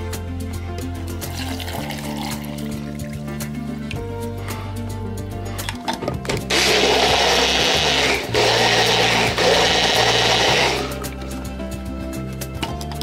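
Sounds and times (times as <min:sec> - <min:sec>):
blender running: 0:06.5 - 0:11.2.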